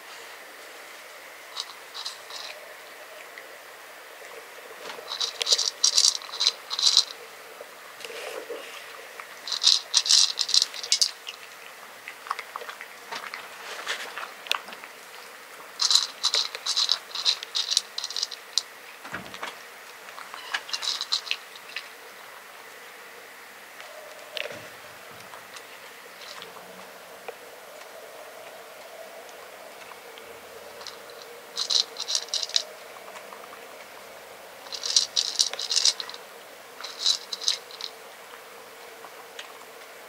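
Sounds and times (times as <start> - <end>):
cat crunching dry kibble: 1.6 - 2.6, 4.8 - 7.2, 8.0 - 18.8, 20.1 - 22.0, 30.6 - 33.7, 34.6 - 36.2, 36.8 - 38.4.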